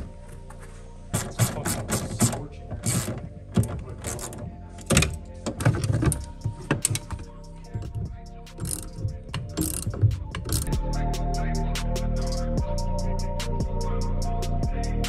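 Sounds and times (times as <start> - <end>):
ratchet wrench clicking: 8.6 - 10.8.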